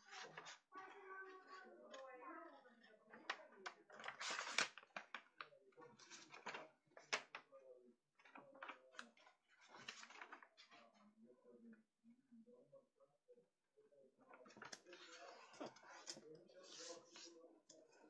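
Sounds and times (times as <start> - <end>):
paper rustling and crinkling: 0.0 - 1.8, 2.9 - 7.5, 8.2 - 11.0, 14.3 - 18.0.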